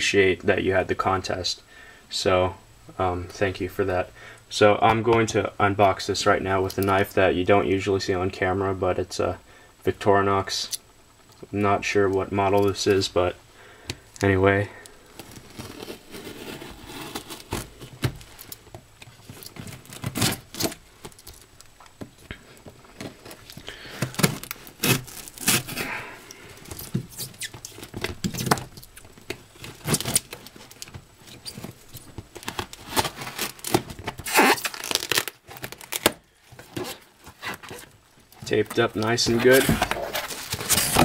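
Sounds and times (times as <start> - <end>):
cardboard scraping: 15.1 - 18.5, 19.1 - 20.8, 22.8 - 26.0, 29.3 - 41.0
tape ripping: 15.2 - 21.5, 23.0 - 26.0, 26.6 - 38.0, 38.6 - 41.0
knife slicing packing tape: 24.3 - 25.8, 32.5 - 36.1.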